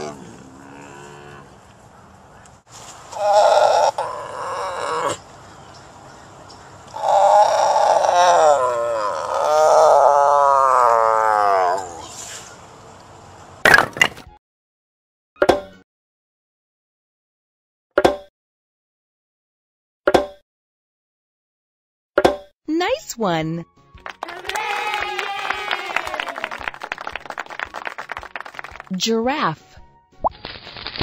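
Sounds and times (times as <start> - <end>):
tiger roaring: 0.0 - 1.5, 3.2 - 5.2.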